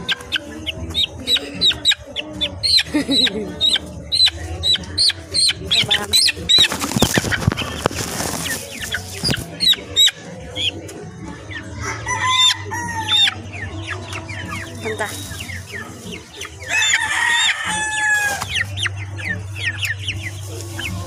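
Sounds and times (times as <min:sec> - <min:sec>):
chickens clucking: 0:00.0 - 0:21.0
high peeping calls: 0:00.0 - 0:21.0
wings flapping: 0:06.0 - 0:09.5.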